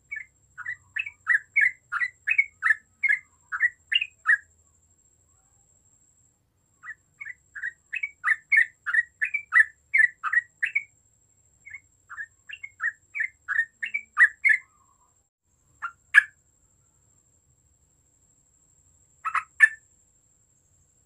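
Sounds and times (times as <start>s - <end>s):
bulbul chirping: 0.1s - 4.5s, 6.8s - 10.9s, 11.7s - 14.9s, 19.2s - 19.8s.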